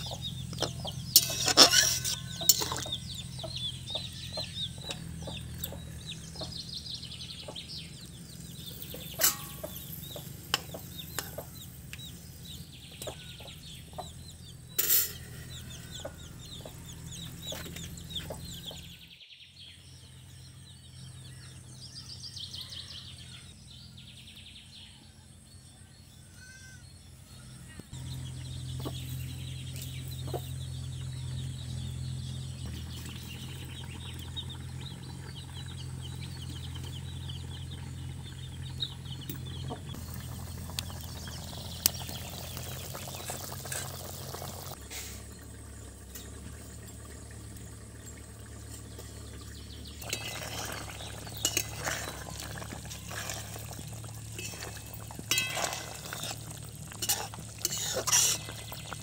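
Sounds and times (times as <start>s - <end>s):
chickens clucking: 0.0s - 18.9s, 28.1s - 42.0s.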